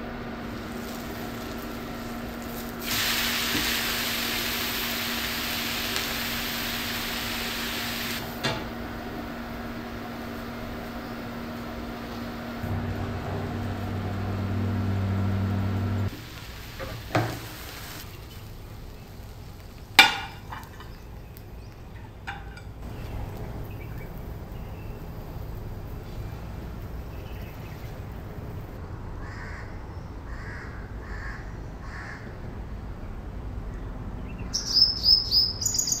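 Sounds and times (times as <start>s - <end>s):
induction cooktop humming: 0.0s - 28.8s
crows cawing: 29.2s - 32.4s
small bird chirping: 34.4s - 36.0s.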